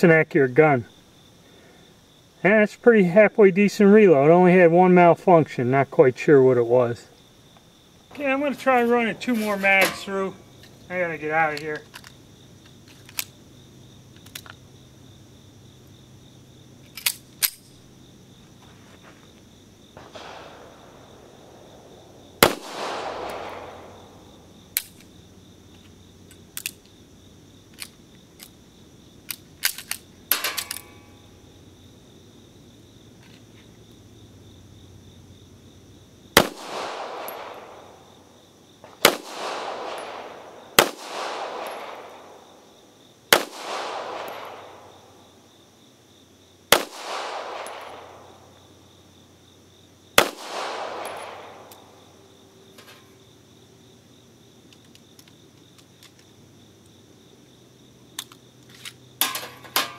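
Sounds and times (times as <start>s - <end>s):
pistol shots: 20.0s - 24.8s, 36.4s - 38.1s, 38.8s - 42.4s, 43.3s - 44.9s, 46.7s - 48.4s, 50.2s - 52.0s.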